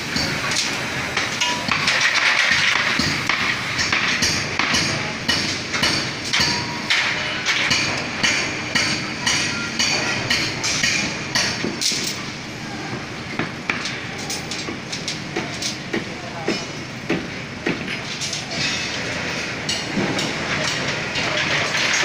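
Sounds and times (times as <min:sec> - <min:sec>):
clanks and knocks: 0:00.1 - 0:12.3, 0:12.9 - 0:22.0
hammering on metal: 0:01.2 - 0:12.2, 0:12.9 - 0:18.7.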